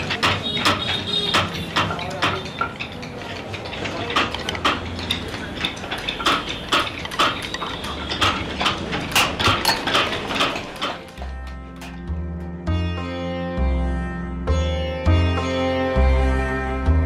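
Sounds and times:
hammer tapping a chisel: 0.0s - 12.1s.

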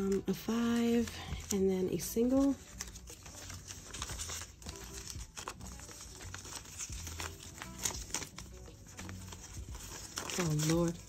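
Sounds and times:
banknotes rustling and flicking: 0.0s - 11.0s.

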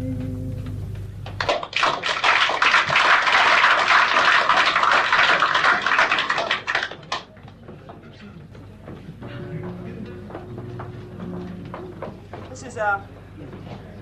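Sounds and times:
audience applauding: 1.4s - 7.6s.

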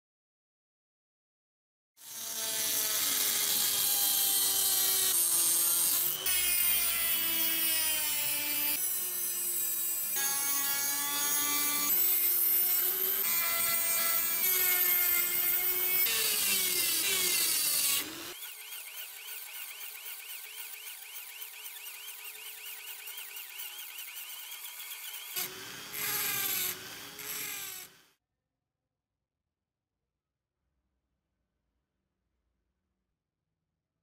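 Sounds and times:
rotary tool grinding metal: 2.0s - 28.1s
rotary tool cutting steel: 2.0s - 28.2s.

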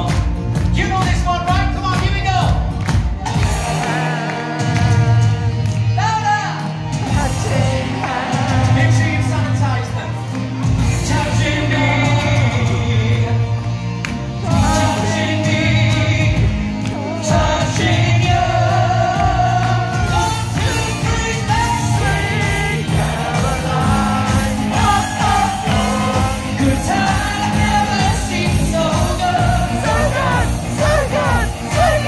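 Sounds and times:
steady drum beat: 0.0s - 9.9s, 14.4s - 32.0s
backing band: 0.0s - 32.0s
man singing into microphone: 10.9s - 13.6s, 14.5s - 22.8s, 23.4s - 32.0s.

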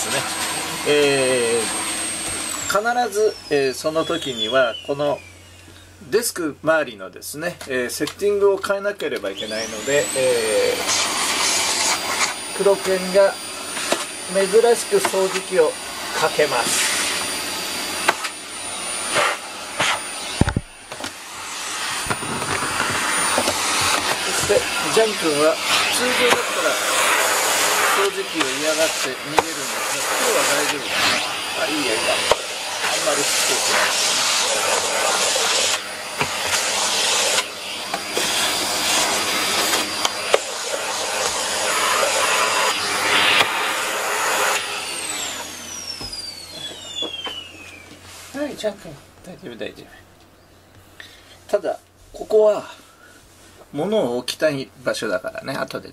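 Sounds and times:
motor whine winding down: 0.0s - 5.8s, 9.4s - 48.0s
vacuum cleaner running: 0.0s - 6.1s, 8.2s - 49.0s.

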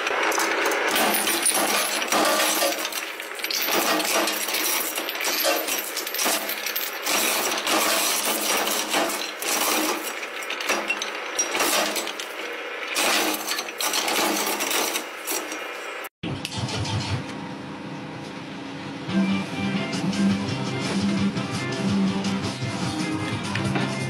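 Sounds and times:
shredder crushing hard chunks: 0.0s - 16.1s.

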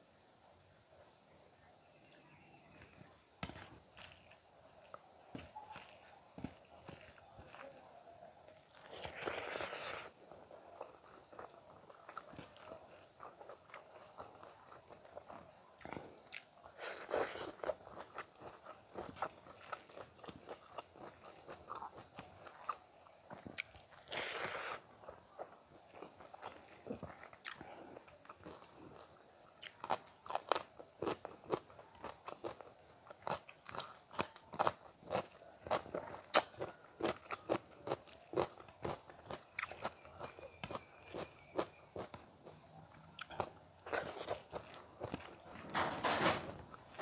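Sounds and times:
person chewing and crunching: 2.7s - 45.6s
wet mouth clicks: 36.3s - 36.6s.

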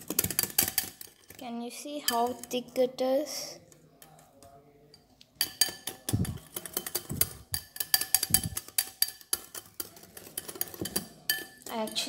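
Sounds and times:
whisk clinking against glass bowl: 5.4s - 12.0s.

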